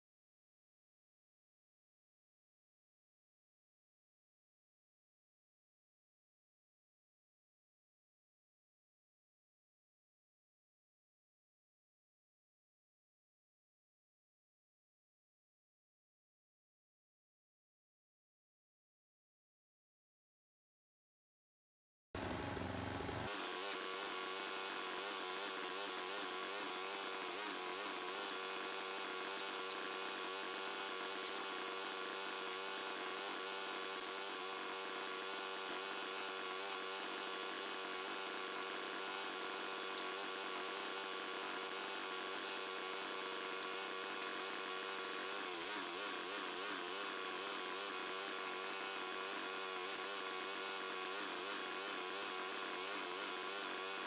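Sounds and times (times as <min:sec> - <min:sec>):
small gasoline engine running: 0:22.2 - 0:54.0.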